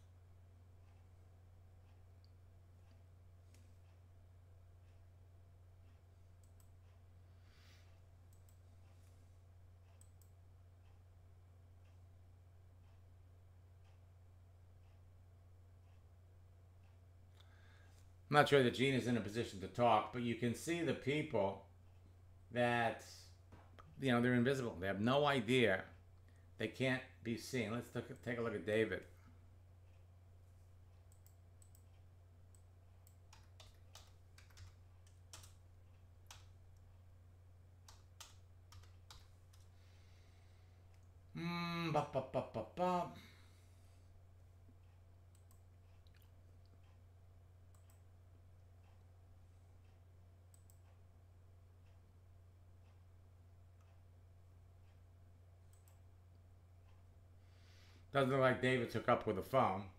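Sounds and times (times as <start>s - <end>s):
low electrical hum: 0.0s - 59.9s
computer mouse clicks: 5.8s - 7.0s, 31.0s - 36.9s, 37.8s - 39.7s, 44.9s - 47.0s, 47.7s - 48.1s, 49.9s - 51.0s, 55.6s - 56.1s
computer keyboard keystrokes: 33.1s - 35.6s, 37.8s - 39.7s.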